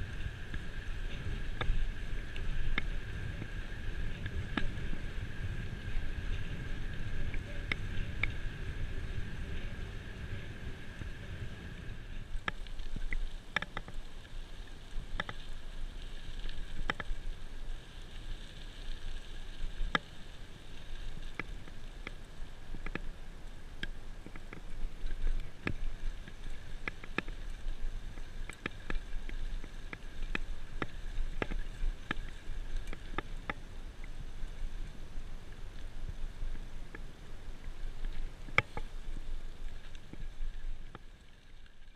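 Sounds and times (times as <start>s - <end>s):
wind rumbling on microphone: 0.0s - 41.9s
bicycle clicks and rattles: 15.1s - 15.4s.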